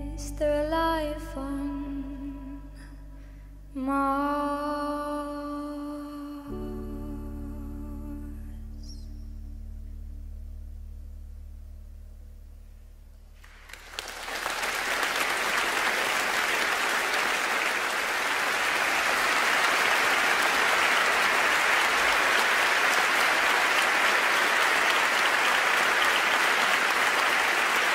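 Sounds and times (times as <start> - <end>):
audience applauding: 13.4 - 27.9.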